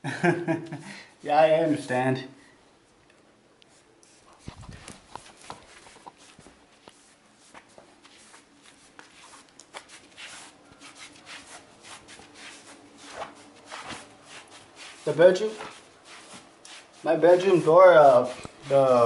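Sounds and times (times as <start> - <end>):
rubbing and taps on microphone: 4.0 - 7.8.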